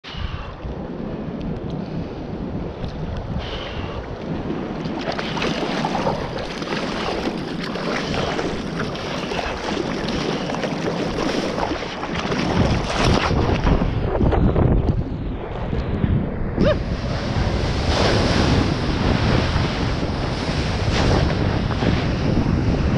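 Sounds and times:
wind buffeting microphone: 0.0 - 22.9
water splashing against surfboard: 4.3 - 13.9.

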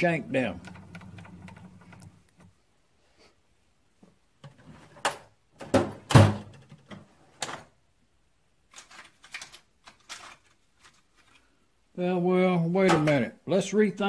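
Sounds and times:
metal tools knocking and clunking: 12.8 - 13.3.

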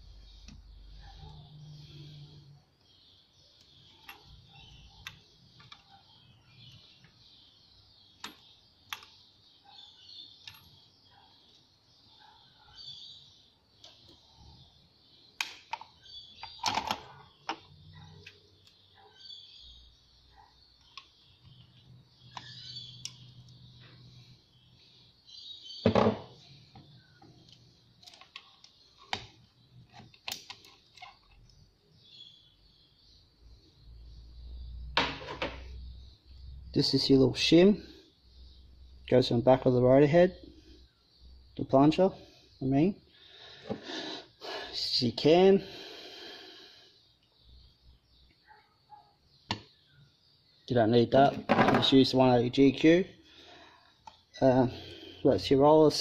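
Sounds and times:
small metal clicks and knocks: 27.4 - 31.6.

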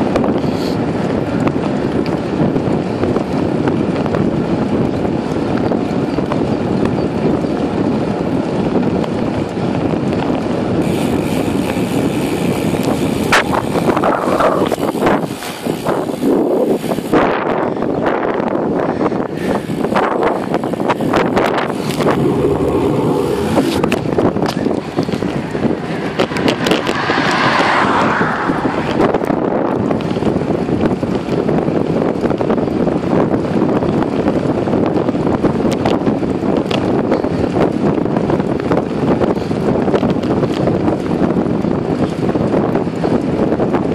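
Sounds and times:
wind buffeting microphone: 0.0 - 43.9
car passing: 19.4 - 29.9.

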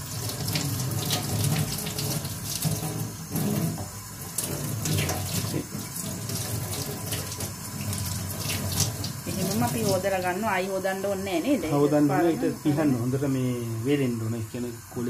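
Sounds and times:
tap water splashing into sink: 0.0 - 10.2.

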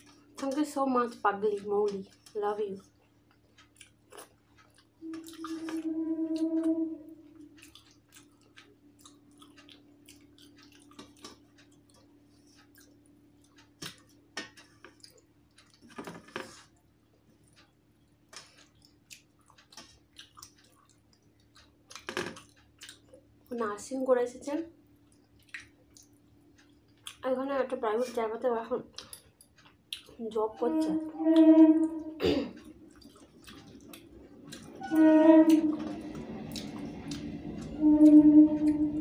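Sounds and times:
chewing: 1.5 - 6.7, 7.3 - 16.8, 17.4 - 23.3, 25.0 - 27.2, 28.8 - 37.8
loud steady hum: 5.0 - 7.8, 30.2 - 39.0.

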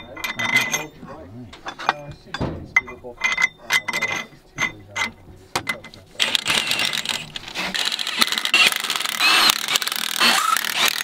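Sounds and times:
socket wrench ratcheting: 6.2 - 11.0.

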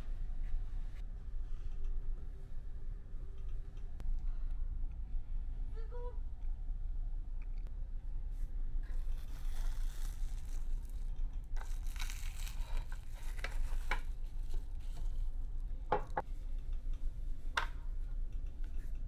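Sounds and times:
steady low hum: 0.0 - 19.0
plastic film crinkling: 9.0 - 15.2.

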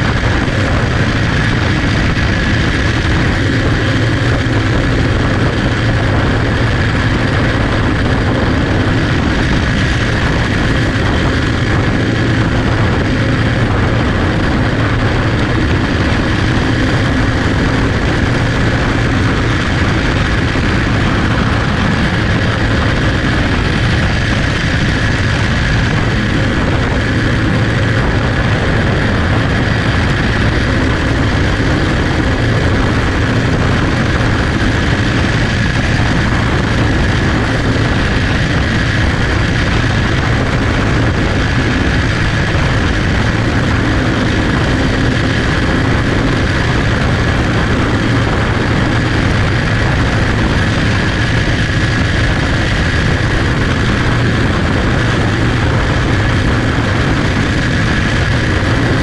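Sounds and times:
kart engine running: 0.0 - 59.0
other kart engines: 0.0 - 59.0.

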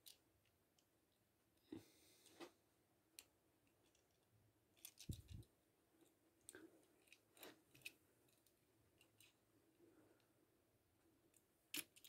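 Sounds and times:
toy car clicking on plastic track: 11.7 - 12.0.

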